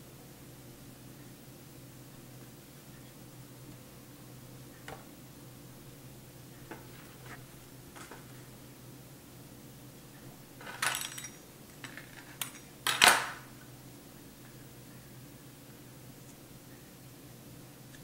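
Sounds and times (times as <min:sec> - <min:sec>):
metal bakeware clattering: 0:10.6 - 0:13.5.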